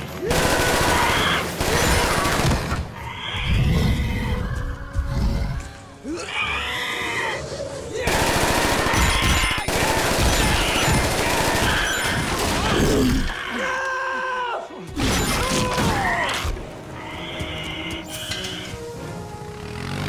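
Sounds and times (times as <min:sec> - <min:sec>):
rapid gunfire: 0:00.0 - 0:02.9, 0:08.0 - 0:13.0
action film music score: 0:00.0 - 0:20.0.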